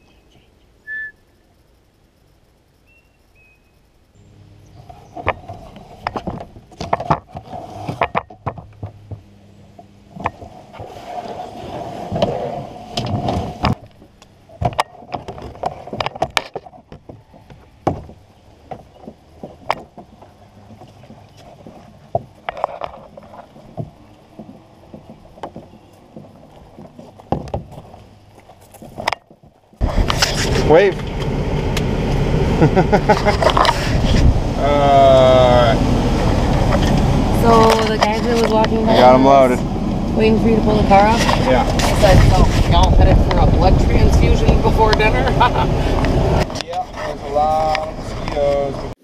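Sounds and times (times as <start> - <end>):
knocks and thumps on kayak: 5.2 - 9.3, 10.1 - 28.0
rubbing against plastic hull: 10.1 - 30.9, 33.1 - 34.5, 40.9 - 48.4.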